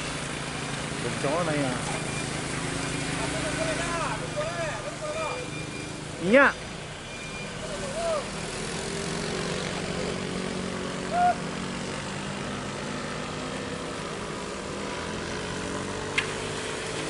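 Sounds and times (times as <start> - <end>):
vehicle engines climbing under load: 0.0 - 17.0
person shouting: 11.0 - 11.5.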